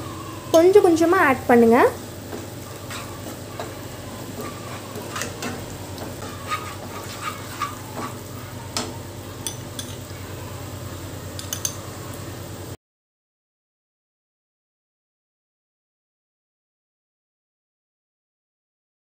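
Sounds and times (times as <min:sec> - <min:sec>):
low sizzle: 0:00.0 - 0:12.8
utensil stirring and scraping pan: 0:02.2 - 0:10.1.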